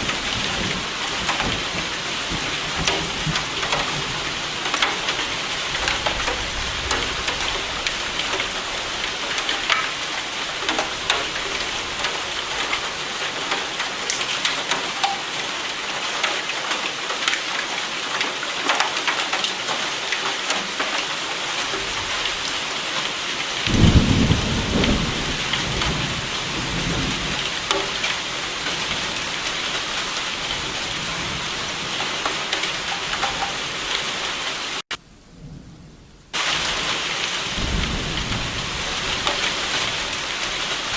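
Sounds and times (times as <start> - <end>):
thunder rumbling: 0.0 - 13.5, 23.6 - 32.0, 34.8 - 40.9
heavy rain: 0.0 - 40.9.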